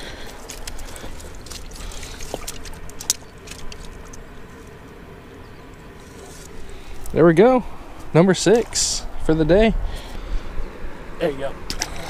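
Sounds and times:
footsteps on rocks and brush: 0.0s - 4.7s.

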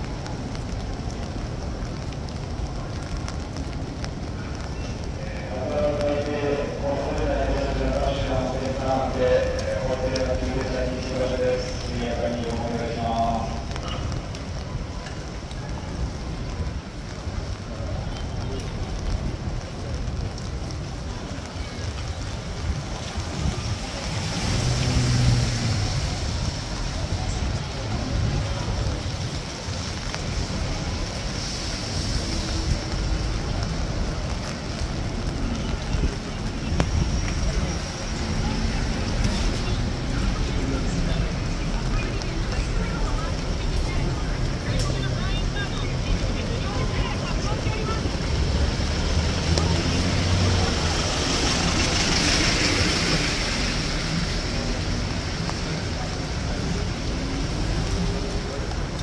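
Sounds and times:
rain hissing: 0.0s - 59.0s
wet city street ambience: 0.0s - 59.0s
vehicle passing: 23.0s - 27.2s, 37.1s - 59.0s.

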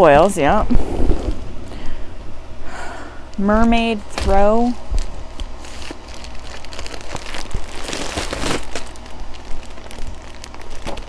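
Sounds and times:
plastic bag crinkling: 4.0s - 11.0s.

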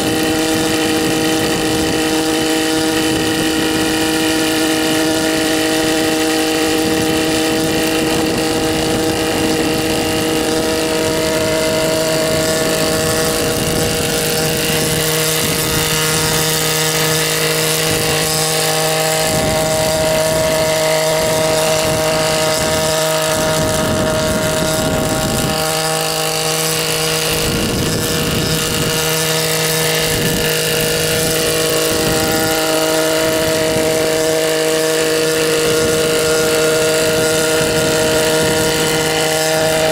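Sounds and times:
helicopter engine and rotors: 0.0s - 39.9s.

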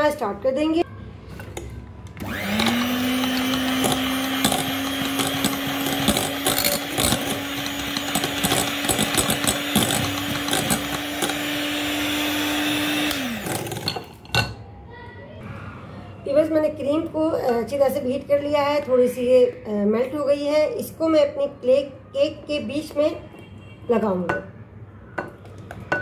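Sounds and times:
electric mixer motor: 2.2s - 13.9s.

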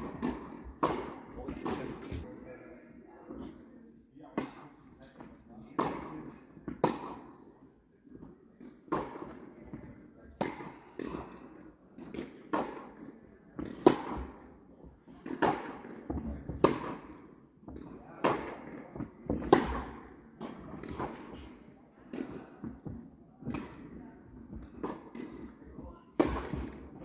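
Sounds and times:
ball bouncing on hard court: 0.0s - 2.2s, 13.6s - 25.6s, 26.2s - 27.0s
tennis ball struck with rackets: 0.0s - 2.2s, 5.8s - 7.4s, 8.9s - 25.6s, 26.2s - 27.0s.

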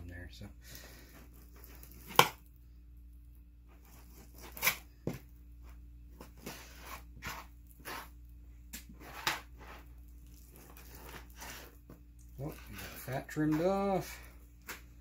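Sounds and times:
knife slicing meat: 6.4s - 8.1s.

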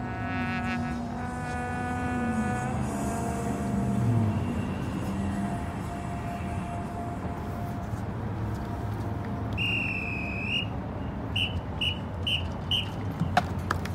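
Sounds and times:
crowd and stadium noise: 2.9s - 13.9s
whistle blasts: 9.5s - 13.0s.

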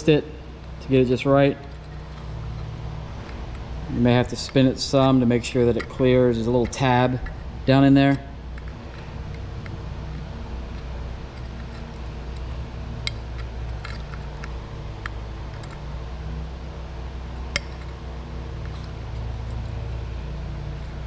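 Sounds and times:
steady low hum: 0.0s - 21.0s
metal clicks and knocks: 8.0s - 15.8s.

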